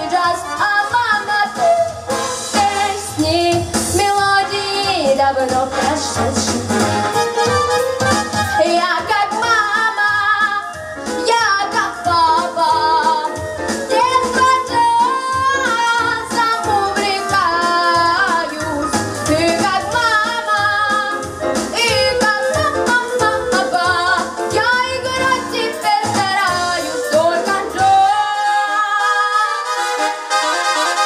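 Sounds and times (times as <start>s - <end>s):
woman singing jazz: 0.0s - 7.0s, 8.5s - 29.7s
bass and drum backing track: 0.0s - 28.9s.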